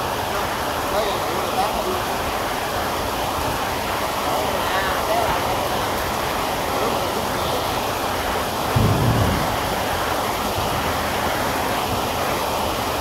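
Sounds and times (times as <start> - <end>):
heavy rain hiss: 0.0 - 13.0
low thump: 8.7 - 9.8.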